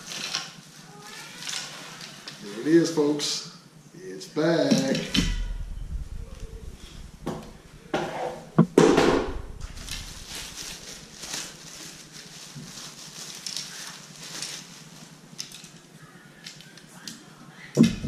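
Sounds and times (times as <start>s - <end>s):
plastic sleeve crinkling: 8.7s - 16.6s.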